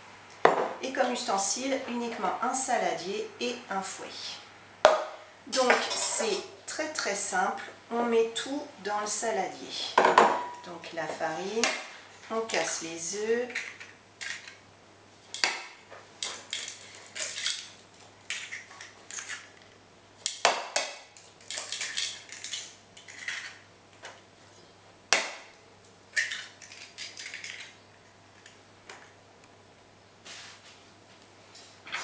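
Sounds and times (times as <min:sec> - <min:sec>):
eggshell crackling: 0:26.1 - 0:29.1.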